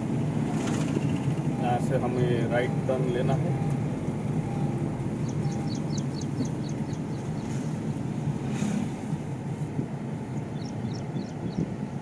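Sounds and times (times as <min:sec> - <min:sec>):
vehicle engine and road rumble: 0:00.0 - 0:12.0
wind noise: 0:05.0 - 0:12.0.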